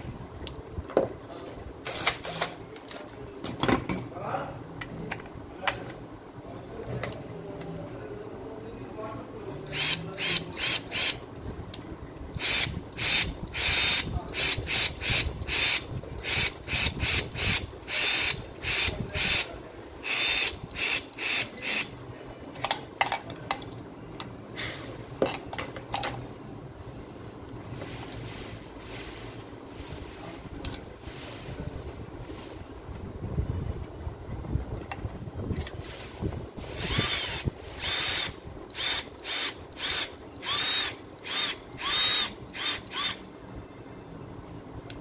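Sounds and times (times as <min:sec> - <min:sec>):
drill motor whining: 0:09.7 - 0:11.2, 0:12.4 - 0:19.4, 0:20.0 - 0:21.9, 0:36.8 - 0:43.2.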